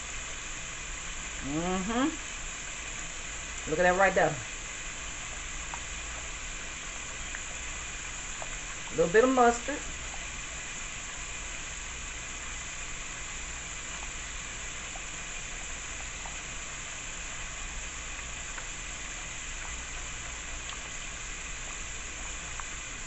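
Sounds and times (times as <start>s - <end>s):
sauce sizzling in a pan: 0.0s - 23.0s.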